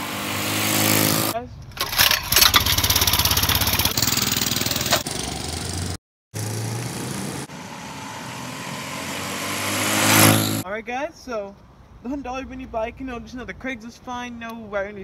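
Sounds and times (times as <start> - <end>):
small motorbike engine running: 0.0 - 7.5, 9.6 - 10.6.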